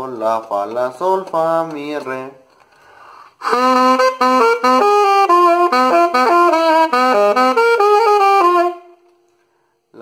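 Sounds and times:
saxophone melodic phrase: 0:03.4 - 0:09.1.

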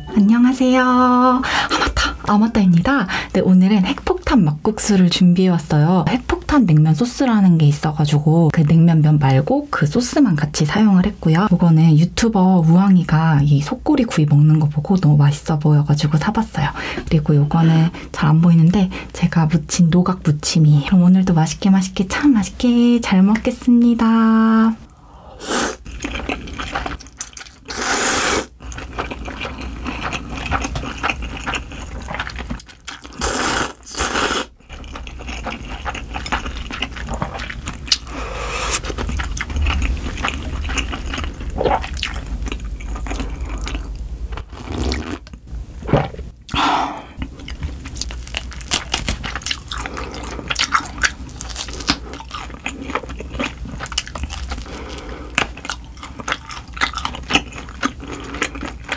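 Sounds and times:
chewing: 0:25.8 - 0:27.7, 0:28.6 - 0:33.2, 0:34.6 - 0:44.0, 0:47.2 - 0:58.9.

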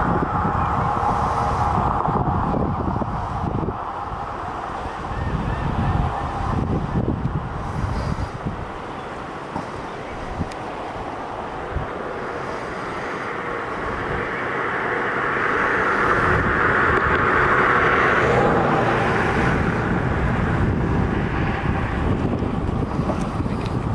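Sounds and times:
passing motor rushing: 0:00.0 - 0:23.9
wind rumble on microphone: 0:00.0 - 0:23.9.

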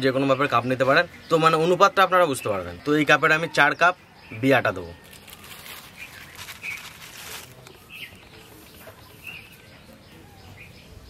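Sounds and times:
bird chirps: 0:00.0 - 0:11.0
plastic bag rustling: 0:05.0 - 0:08.9.

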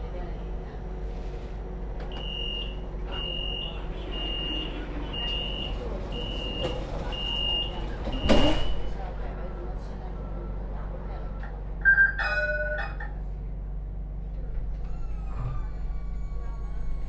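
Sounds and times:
tram low hum: 0:00.0 - 0:17.0
tram warning beeps: 0:02.1 - 0:13.2.

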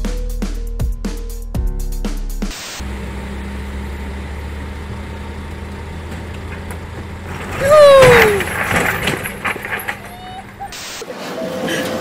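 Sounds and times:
music: 0:00.0 - 0:02.8
diesel engine idling: 0:02.8 - 0:11.0.

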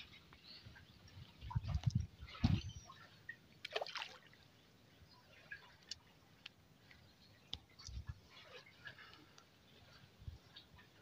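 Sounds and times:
water lapping against boat: 0:07.6 - 0:11.0.

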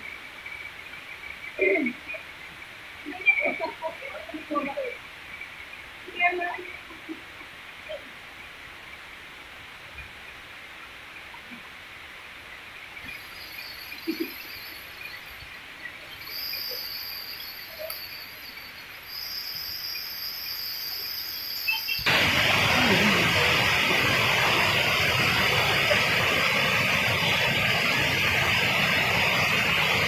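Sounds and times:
insects droning: 0:00.0 - 0:30.0
loud rushing noise: 0:22.0 - 0:30.0.

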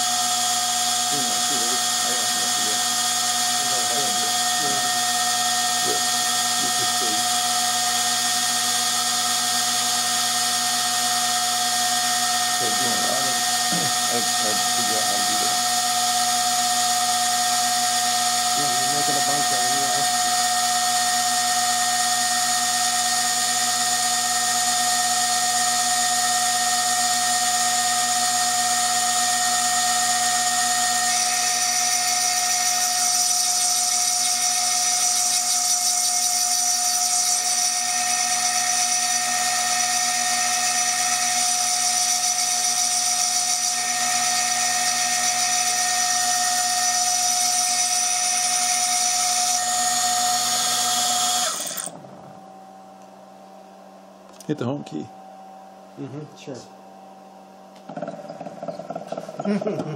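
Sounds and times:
milling spindle whining and grinding: 0:00.0 - 0:52.4.

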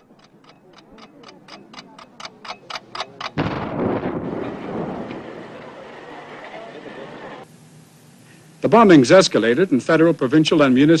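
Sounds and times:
clock-like ticking: 0:00.0 - 0:03.4
noisy rumble: 0:00.0 - 0:11.0
bomb explosion: 0:03.4 - 0:06.0.

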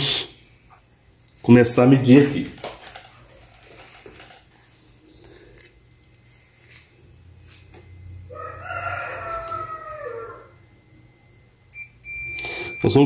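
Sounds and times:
rooster crowing: 0:08.2 - 0:10.9.

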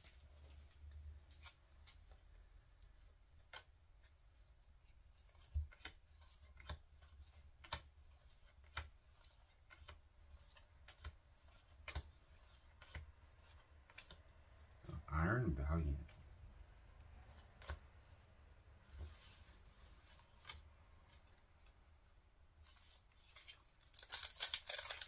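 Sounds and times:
cards being flipped: 0:03.4 - 0:04.1, 0:05.2 - 0:14.3, 0:17.2 - 0:17.9, 0:18.8 - 0:21.4, 0:22.6 - 0:25.0.

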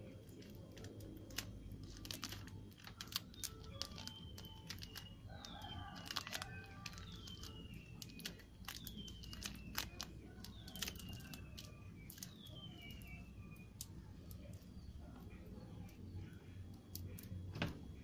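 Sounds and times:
adhesive tape crinkling: 0:00.0 - 0:16.0.

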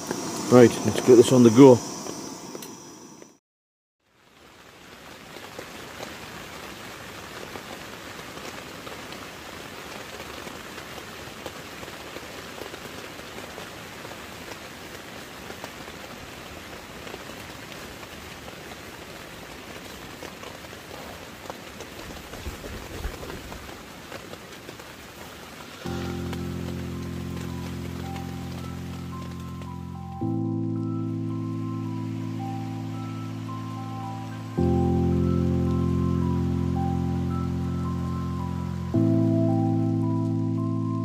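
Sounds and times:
heavy rain on tent fabric: 0:04.0 - 0:41.0.

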